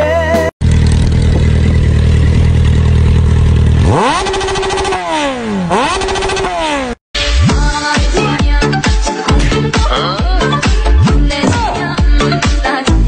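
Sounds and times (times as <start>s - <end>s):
motorcycle engine idling and revving: 0.6s - 13.0s.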